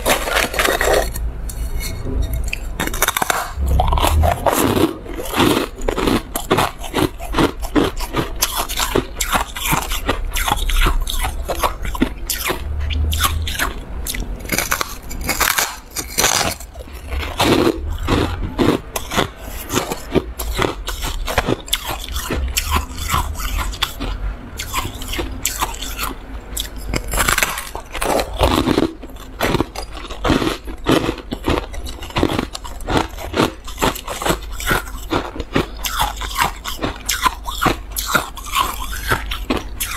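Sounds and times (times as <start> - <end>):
crunching shaved ice: 0.0 - 39.9.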